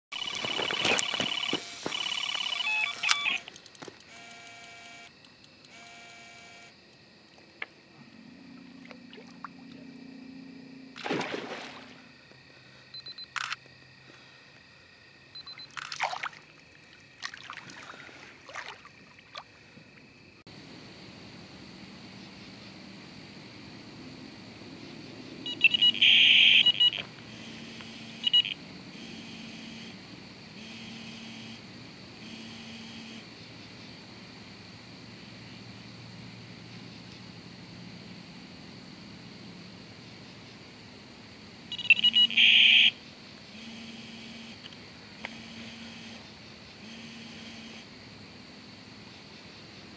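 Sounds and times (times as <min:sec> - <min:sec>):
electronic bite alarm tones: 0:00.1 - 0:05.1, 0:05.7 - 0:06.8, 0:25.5 - 0:29.9, 0:41.7 - 0:43.0.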